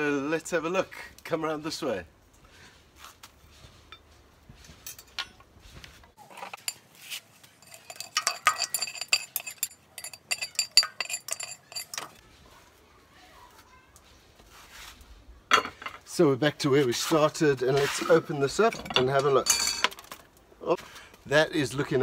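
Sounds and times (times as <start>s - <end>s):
cast iron pot clinking: 6.2s - 12.2s, 15.5s - 16.1s, 18.0s - 20.2s.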